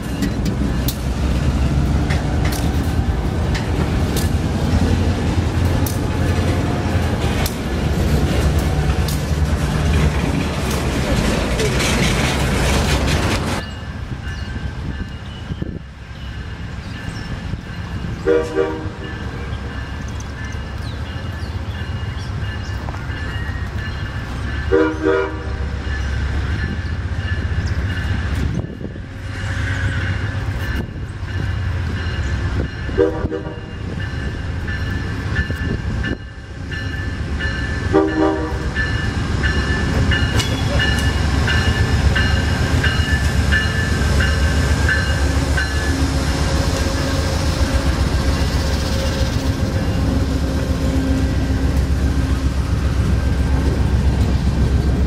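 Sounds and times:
wheels clattering on rails: 0.0s - 25.0s, 29.8s - 55.0s
diesel and rail rumble: 0.0s - 55.0s
train horn blasts: 18.2s - 19.2s, 24.7s - 25.8s, 32.9s - 33.8s, 37.9s - 38.8s.

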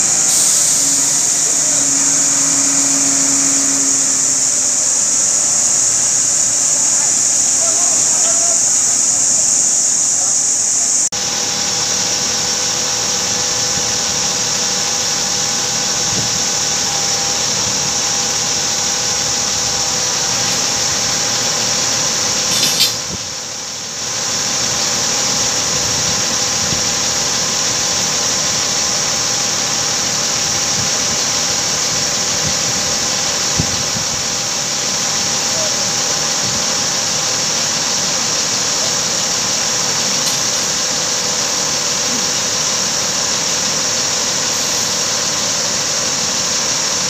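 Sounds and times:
low hum: 0.0s - 9.0s
crane engine and hydraulics whine: 0.0s - 47.0s.

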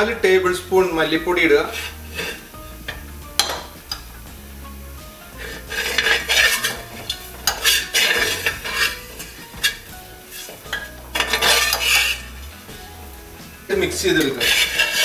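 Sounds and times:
spoon scraping in steel pan: 1.4s - 4.2s, 5.4s - 12.6s, 14.1s - 15.0s.

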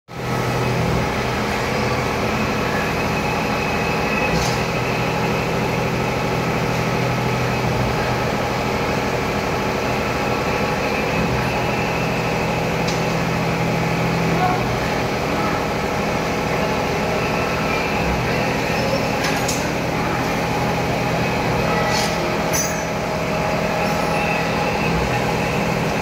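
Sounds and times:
machining hum: 0.1s - 26.0s.

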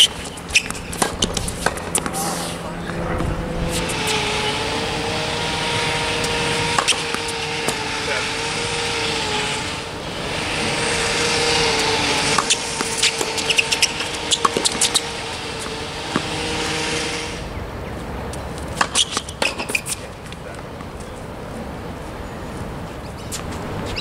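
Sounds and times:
ball bouncing on court: 0.0s - 2.2s, 6.7s - 8.1s, 11.8s - 16.8s
shoes squeaking on court: 0.0s - 9.8s, 10.4s - 24.0s
racquets striking tennis ball: 0.0s - 17.5s, 18.3s - 21.4s
steady background hum: 0.0s - 24.0s.

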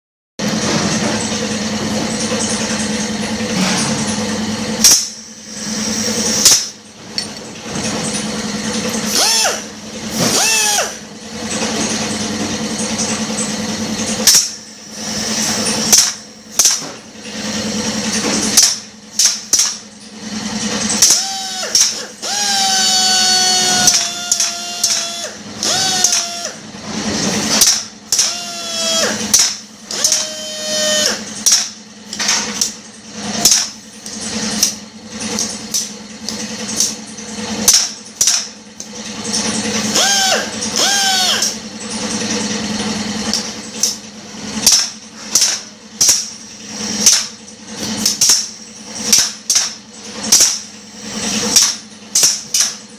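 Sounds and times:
pneumatic drill running: 0.4s - 52.9s
steady motor hum: 0.4s - 52.9s
whining tones: 1.4s - 13.6s, 20.8s - 26.8s, 27.5s - 31.5s, 39.2s - 44.0s.

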